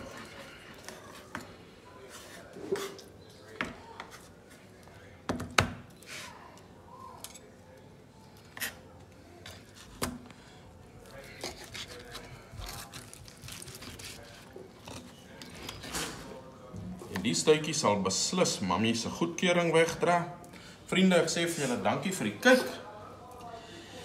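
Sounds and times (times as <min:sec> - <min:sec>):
knife and fork on cutting board: 0:11.4 - 0:16.0.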